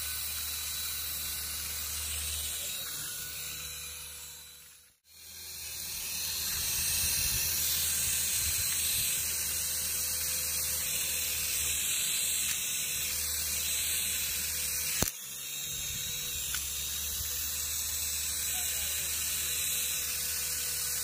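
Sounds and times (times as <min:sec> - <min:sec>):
toy helicopter motor whirring: 0:00.0 - 0:21.0
sharp click: 0:14.9 - 0:15.2.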